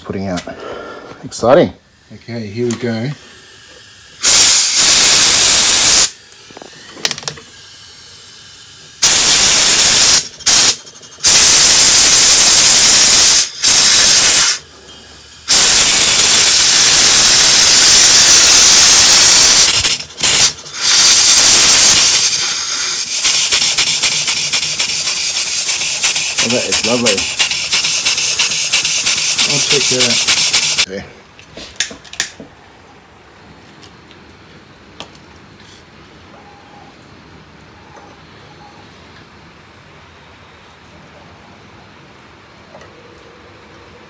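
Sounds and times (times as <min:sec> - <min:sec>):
compressed air hissing bursts: 0:03.2 - 0:06.2, 0:07.5 - 0:30.9
small steam engine pulsing: 0:07.5 - 0:30.9.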